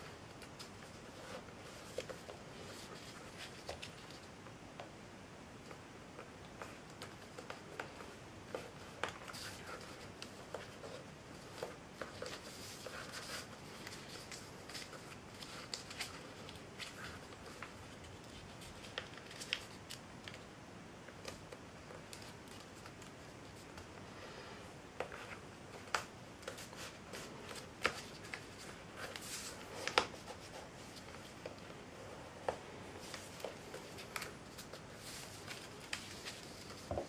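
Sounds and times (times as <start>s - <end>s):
paper rustling and crackling: 6.5s - 20.5s, 25.0s - 37.0s.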